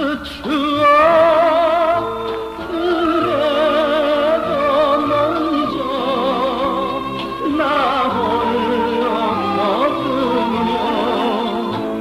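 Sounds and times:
man singing pop ballad: 0:00.0 - 0:02.0
band accompaniment with bass: 0:00.0 - 0:12.0.

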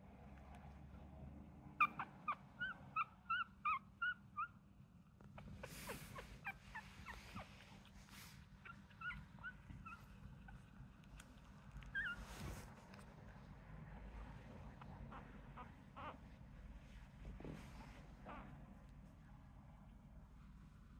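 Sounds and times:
puppies squeaking: 0:01.8 - 0:04.6, 0:05.2 - 0:12.6, 0:15.1 - 0:16.2
soft rustles: 0:05.2 - 0:13.6, 0:16.2 - 0:19.2.

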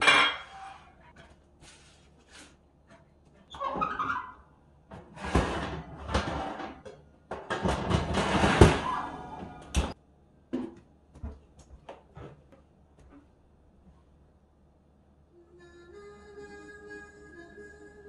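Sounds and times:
rattling and scraping inside oven: 0:05.0 - 0:06.8, 0:07.4 - 0:09.9.

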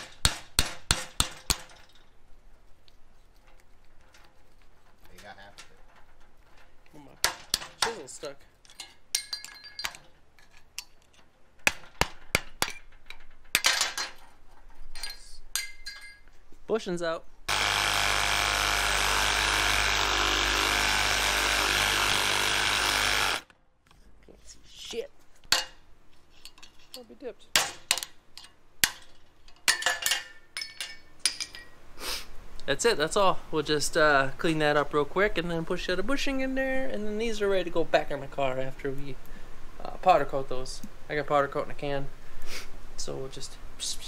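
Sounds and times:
hammer striking metal chisel: 0:00.0 - 0:01.8
metal clattering: 0:00.0 - 0:16.4.

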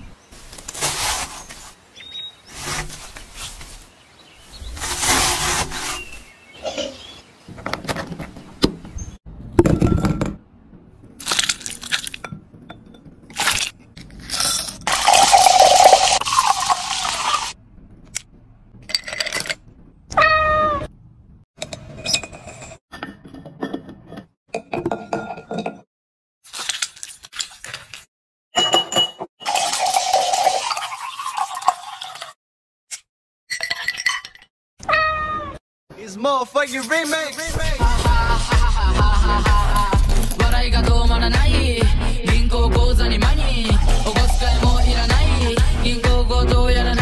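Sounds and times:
soda pouring and fizzing: 0:14.8 - 0:17.6, 0:29.4 - 0:32.4
cat meowing: 0:20.2 - 0:20.9, 0:34.8 - 0:35.6
glass clinks: 0:28.6 - 0:29.2.

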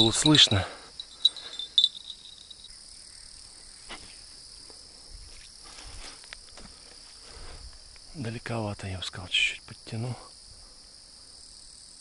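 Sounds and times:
bite alarm bell tinkling: 0:00.0 - 0:02.8
crickets chirring: 0:00.0 - 0:12.0.

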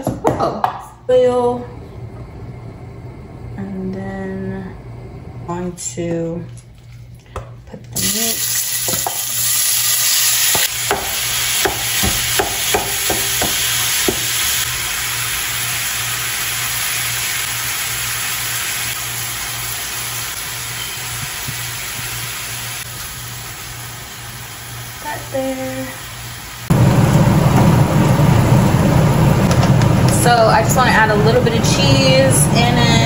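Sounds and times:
meat sizzling in frying pan: 0:08.0 - 0:26.7.

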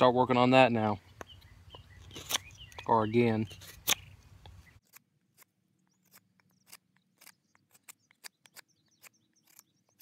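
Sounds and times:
knife scraping a stick: 0:02.0 - 0:10.0.

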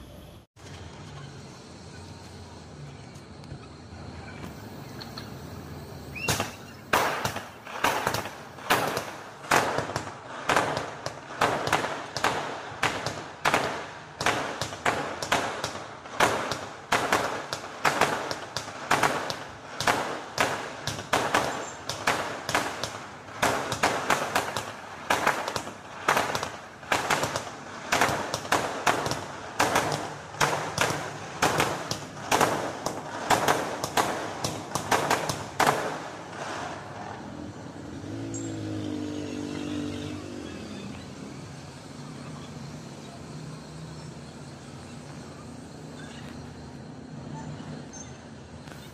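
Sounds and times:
fireworks banging: 0:03.1 - 0:38.0.

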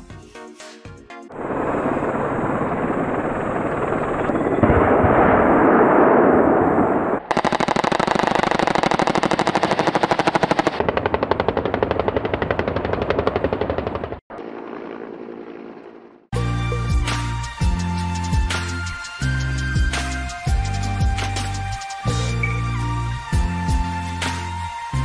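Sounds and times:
helicopter running hum: 0:01.3 - 0:04.8, 0:07.3 - 0:16.4
helicopter gun firing bursts: 0:01.4 - 0:05.3, 0:07.3 - 0:15.3.

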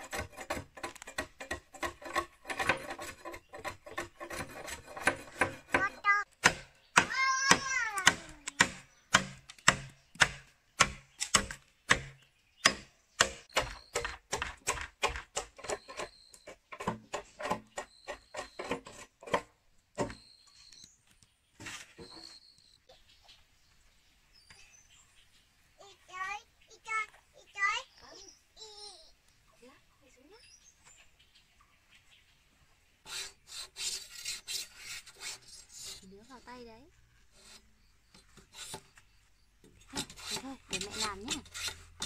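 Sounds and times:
tool striking bamboo: 0:00.0 - 0:20.2.

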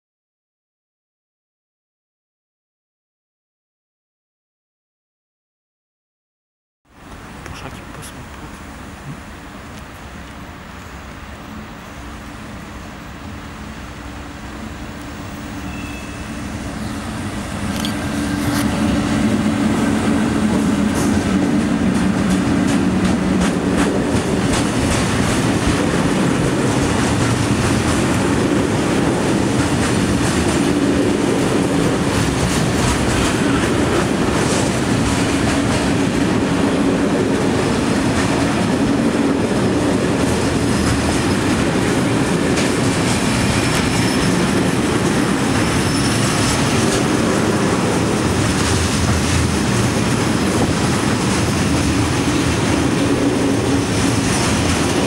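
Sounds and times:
diesel locomotive engine: 0:07.0 - 0:55.0
freight wagons rumbling: 0:15.6 - 0:55.0
train wheels clicking over rails: 0:16.7 - 0:55.0.

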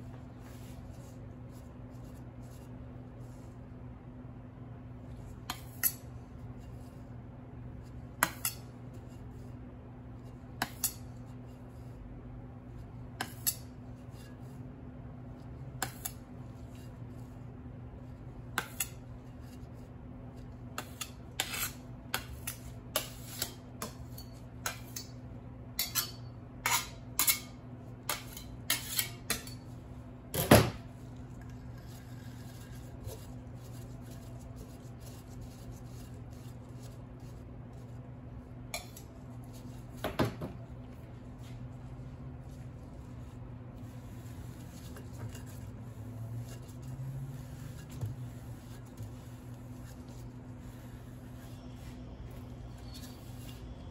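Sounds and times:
steady low hum: 0:00.0 - 0:53.9.

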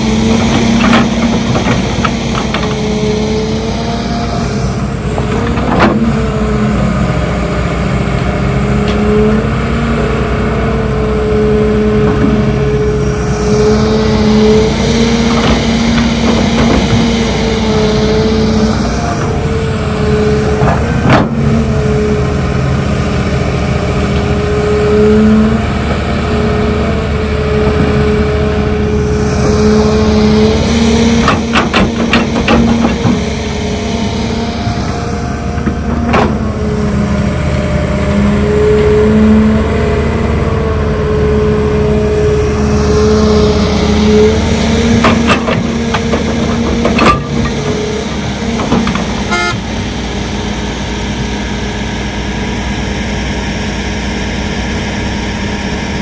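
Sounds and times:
excavator diesel engine whining: 0:00.0 - 0:56.0
sharp knocks: 0:31.2 - 0:33.3.

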